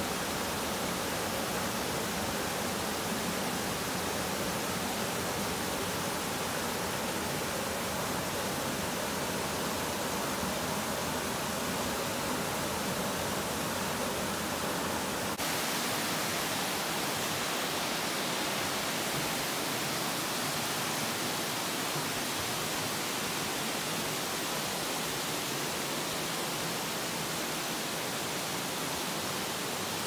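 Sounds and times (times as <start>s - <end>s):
rushing stream water: 0.0s - 30.0s.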